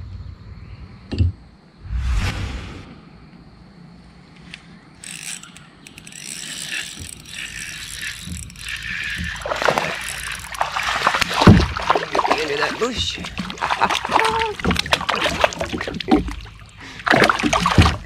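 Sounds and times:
fishing reel cranking: 0:05.0 - 0:14.8.

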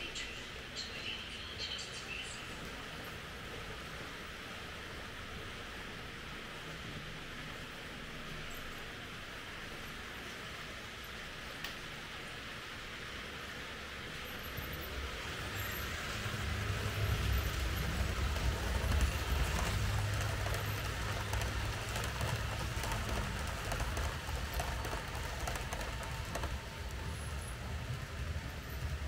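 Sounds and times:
model train motor humming: 0:13.2 - 0:29.0
train wheels clattering on track: 0:14.1 - 0:29.0.

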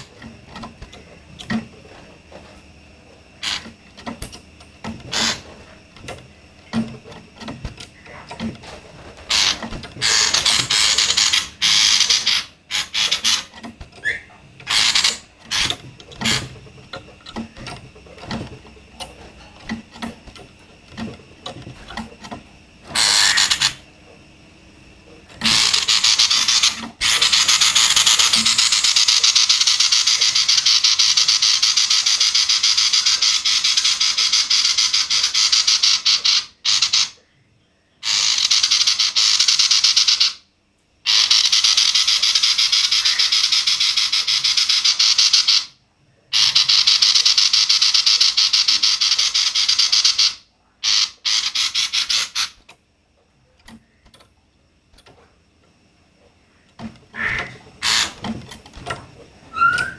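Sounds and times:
bird harsh rasping calls: 0:09.3 - 0:16.5, 0:22.9 - 0:23.8, 0:46.3 - 0:52.6, 0:57.1 - 0:58.2, 0:59.5 - 0:59.9.

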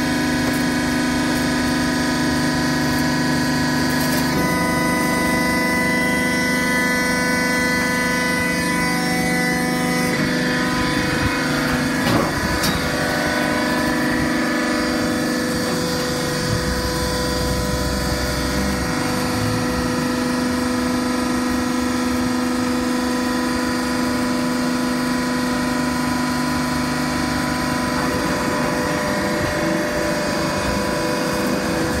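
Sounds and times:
hydraulic motor and pump humming: 0:00.0 - 0:32.0.

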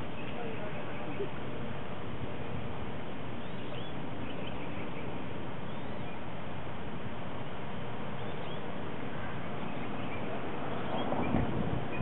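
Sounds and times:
outdoor background hiss and rumble: 0:00.0 - 0:12.0
faint high bird chirps: 0:03.4 - 0:06.3, 0:08.2 - 0:08.7.

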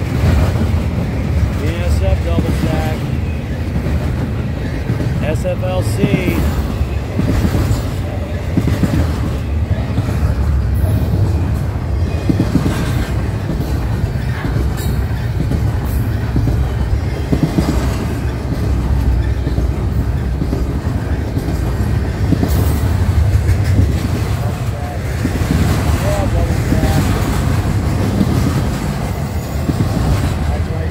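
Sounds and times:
rail cars clicking and clacking: 0:00.0 - 0:30.9
train wheels rumbling on rails: 0:00.0 - 0:30.9.

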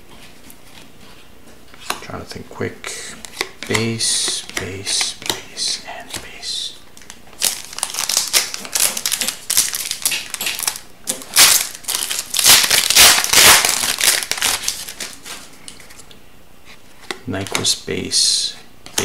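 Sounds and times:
foil wrapper crinkling: 0:07.0 - 0:16.0.

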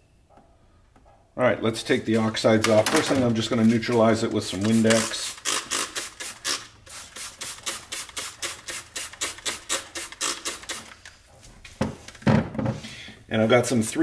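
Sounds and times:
spray bottle hissing: 0:04.5 - 0:11.0.

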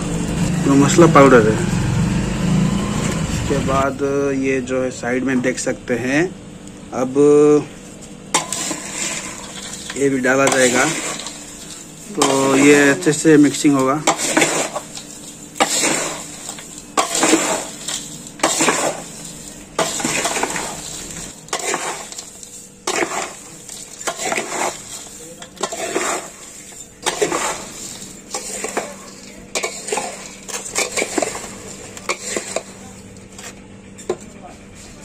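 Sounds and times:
stick stirring snacks in metal bowl: 0:07.9 - 0:35.0.

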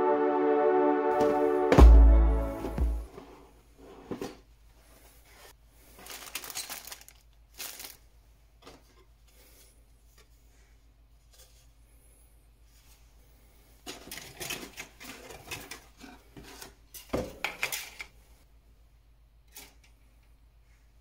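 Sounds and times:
sharp knock: 0:01.2 - 0:03.0
plastic parts clattering: 0:06.0 - 0:08.0, 0:13.8 - 0:18.2.

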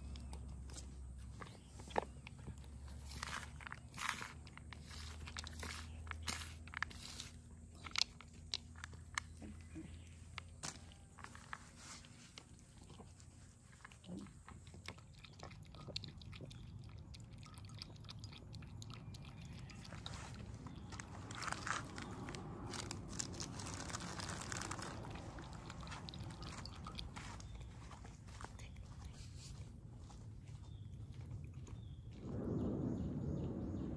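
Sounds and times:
cat crunching dry kibble: 0:01.9 - 0:32.3
cat lapping milk: 0:12.1 - 0:22.5, 0:23.4 - 0:29.8.

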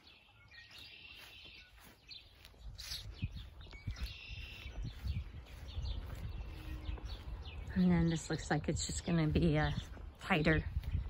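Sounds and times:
birds chirping and singing: 0:00.0 - 0:11.0
low rumble on microphone: 0:02.7 - 0:11.0.

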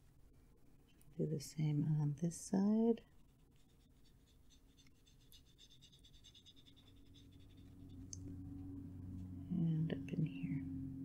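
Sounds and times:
brush pen scratching on card: 0:03.1 - 0:08.1.

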